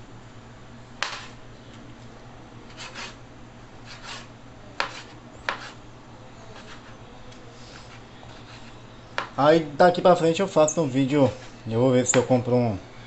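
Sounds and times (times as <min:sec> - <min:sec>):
knife cutting strokes: 0:01.0 - 0:01.4, 0:02.7 - 0:03.2, 0:03.8 - 0:05.8, 0:06.6 - 0:06.9, 0:07.6 - 0:09.3.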